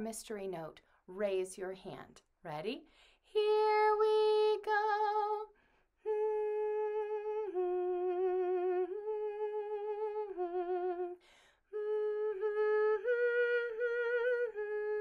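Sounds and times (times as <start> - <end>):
breath: 2.9 - 3.3, 5.5 - 5.9, 11.2 - 11.7
woman humming a melody: 6.1 - 11.2, 11.8 - 15.0.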